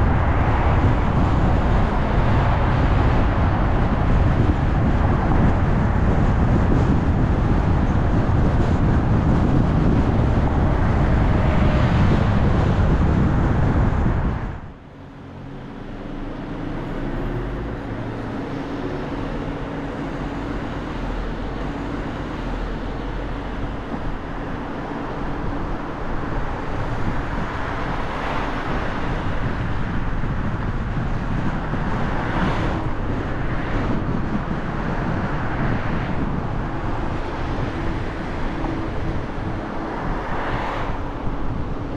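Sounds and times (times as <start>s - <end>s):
car road and wind rush: 0.0s - 41.9s
low engine hum: 0.0s - 41.9s
street traffic: 0.0s - 41.9s.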